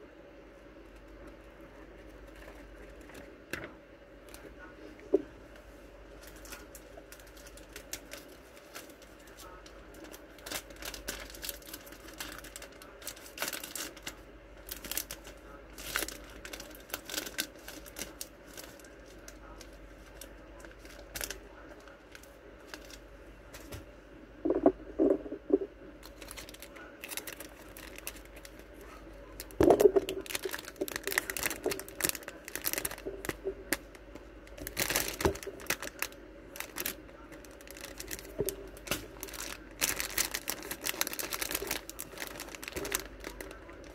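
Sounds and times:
plastic packaging crinkling: 6.1 - 23.0, 24.4 - 43.9.

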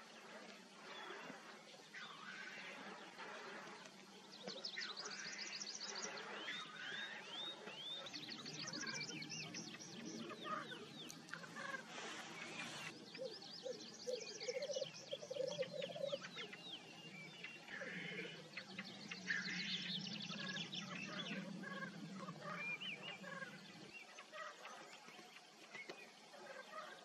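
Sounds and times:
grouse hissing calls: 0.0 - 4.0, 10.2 - 13.3
grouse low bubbling coo: 12.6 - 16.7, 17.7 - 25.3.

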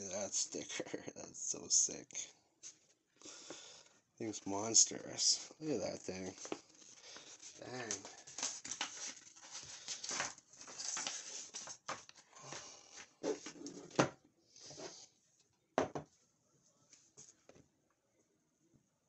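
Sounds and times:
paper and plastic rustling: 6.2 - 14.0.

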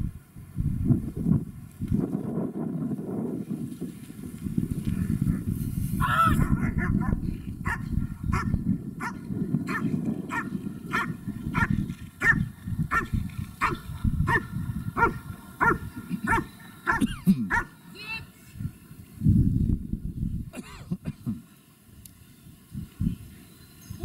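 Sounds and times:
dog barking: 6.4 - 17.7.

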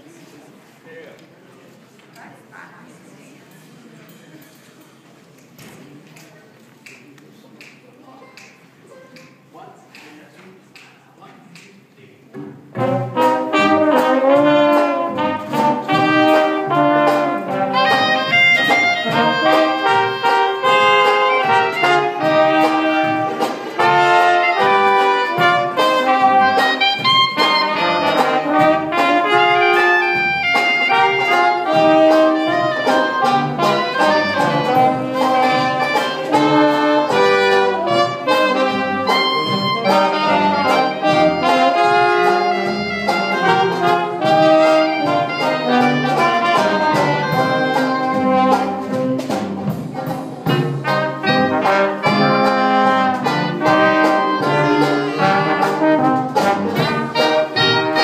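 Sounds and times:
drums keeping a steady beat: 12.3 - 58.0
trombone: 12.7 - 58.0
trumpet: 12.8 - 58.0.

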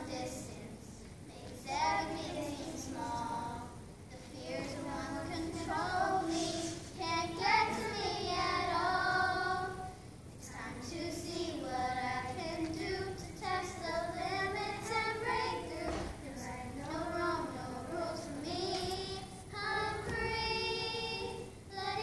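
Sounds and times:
children singing: 4.3 - 22.0.

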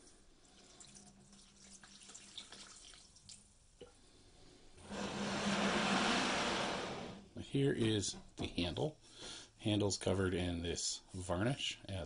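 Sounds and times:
faint drips and ticks: 0.0 - 4.0
liquid pouring into plastic tub: 0.4 - 3.5.

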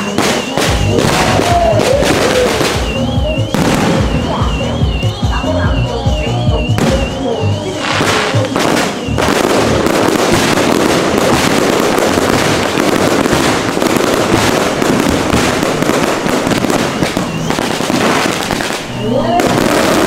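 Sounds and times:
fireworks bursting and crackling: 0.0 - 20.0.

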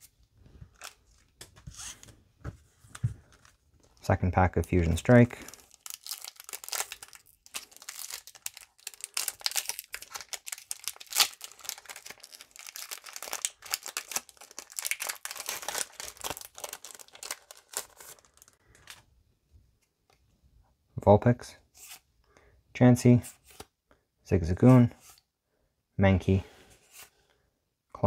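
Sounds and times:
foil wrapper crinkling and tearing: 5.4 - 19.0.

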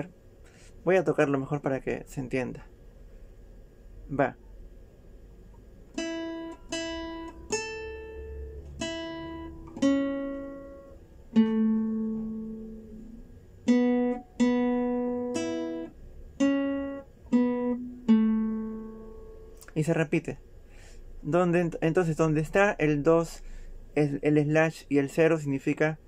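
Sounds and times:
classical guitar slow melody: 5.9 - 19.7.

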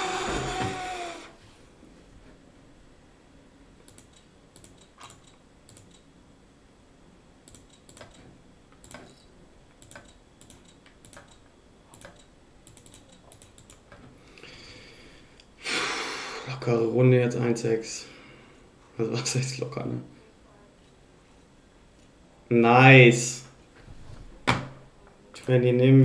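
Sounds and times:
faint computer clicks: 3.8 - 6.1, 9.8 - 14.1.

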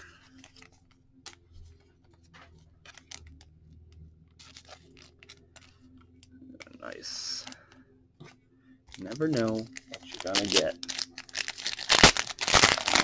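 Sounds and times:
plastic sleeve crinkling: 0.2 - 2.1, 2.8 - 3.4, 4.4 - 7.6, 8.9 - 13.0.

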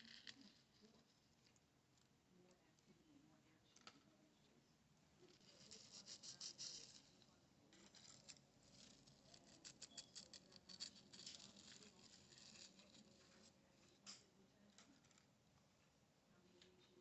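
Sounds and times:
flower bouquet rustling and crackling: 5.2 - 14.2.

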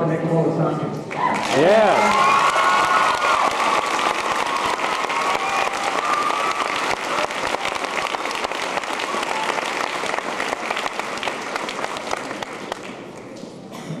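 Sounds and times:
audience applauding: 1.1 - 13.3
audience cheering: 1.2 - 12.4.

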